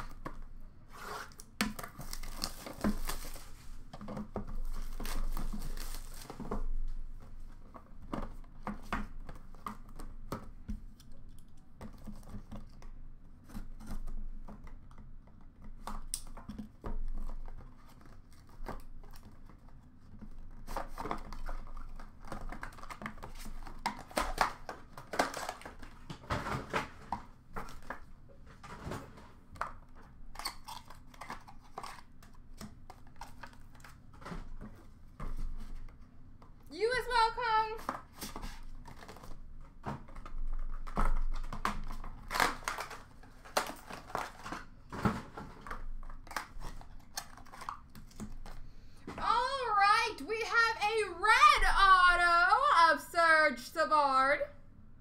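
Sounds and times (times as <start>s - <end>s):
plastic wrap tearing and crinkling: 0.9s - 3.9s, 4.6s - 6.8s, 17.1s - 26.0s, 30.1s - 34.0s, 38.0s - 48.6s.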